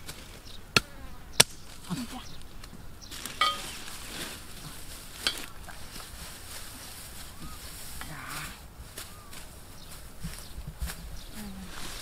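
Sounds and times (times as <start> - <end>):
insects buzzing: 0.0 - 12.0
steady outdoor hiss: 0.0 - 12.0.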